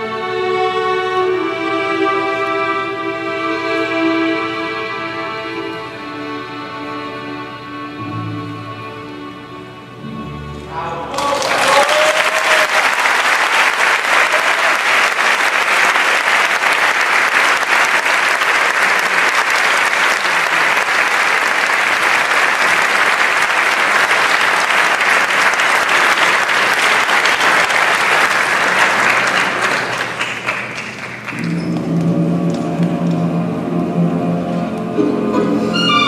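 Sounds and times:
audience applauding: 11.1s - 33.2s.

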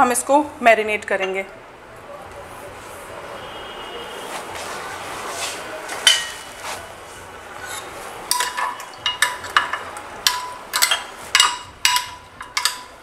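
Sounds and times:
metal spoon clinking on glass dish: 8.3s - 13.0s.

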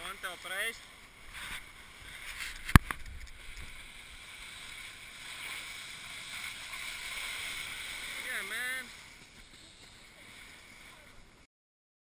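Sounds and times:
snowboard scraping on snow: 3.7s - 11.2s.

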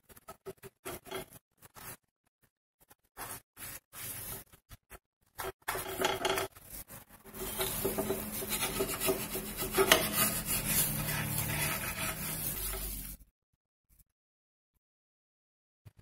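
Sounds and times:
wooden spatula scraping iron pan: 5.4s - 13.2s.

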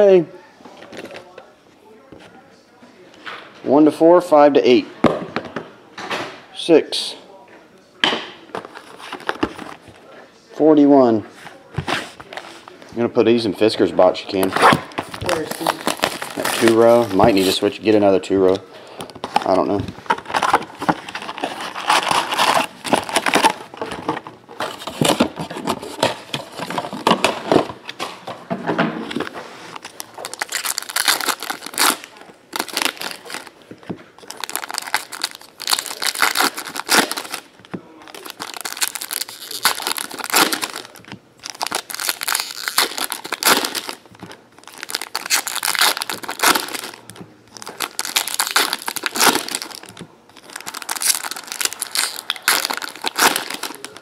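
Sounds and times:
foil packs torn and crinkled: 14.6s - 18.0s, 19.3s - 23.7s, 29.8s - 33.6s, 34.2s - 54.0s.

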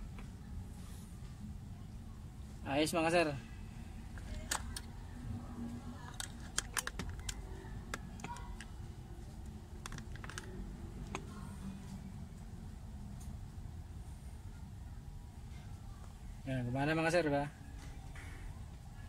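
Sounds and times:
steady low hum: 0.0s - 19.0s
plastic clicks and taps: 6.1s - 8.7s, 9.8s - 11.3s.

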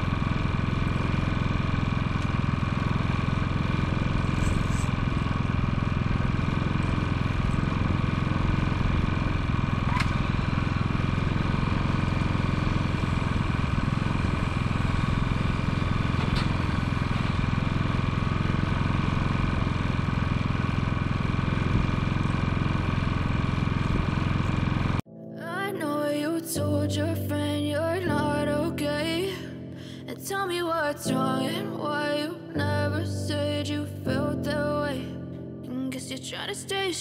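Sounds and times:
engine running steadily: 0.0s - 25.1s.

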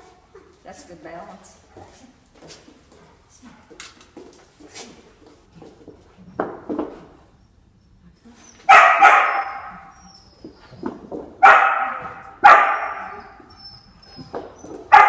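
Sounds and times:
dog barking in a hall: 8.6s - 15.0s.

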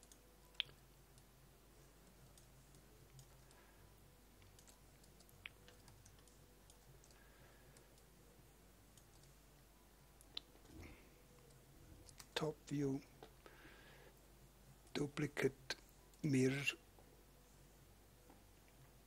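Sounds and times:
computer mouse clicks: 2.2s - 3.6s, 4.4s - 8.1s, 8.9s - 9.4s, 11.4s - 12.4s.

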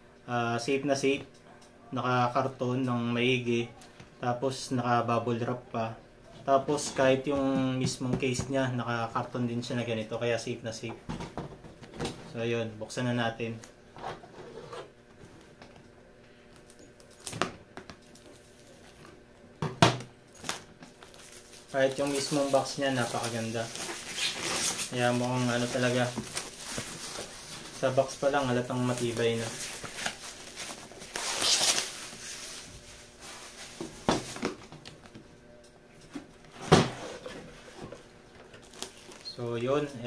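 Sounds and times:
plastic wrapping crinkling: 20.3s - 34.4s, 37.9s - 39.6s.

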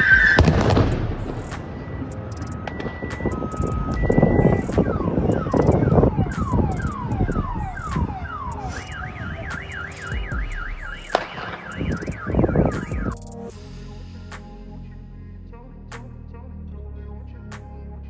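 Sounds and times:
loud bursts of noise: 0.0s - 13.2s
sharp bang: 0.0s - 13.4s
car alarm whooping and warbling: 0.0s - 13.5s
background music: 0.0s - 18.0s.

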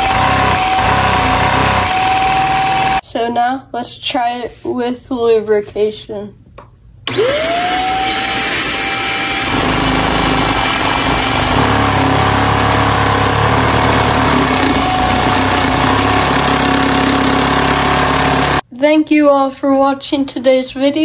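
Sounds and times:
vacuum cleaner motor whine: 0.0s - 3.0s, 7.1s - 18.6s.

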